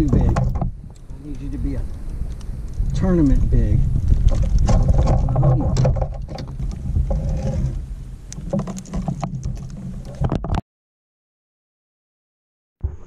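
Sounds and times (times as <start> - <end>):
fish knocking and rattling: 0.0 - 1.0, 3.9 - 10.6
low rumble: 0.0 - 10.2.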